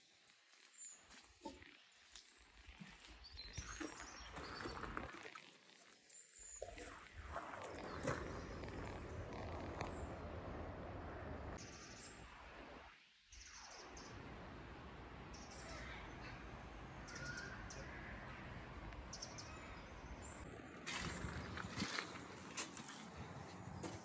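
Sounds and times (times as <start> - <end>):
faint bird chirps: 15.3 - 18.2.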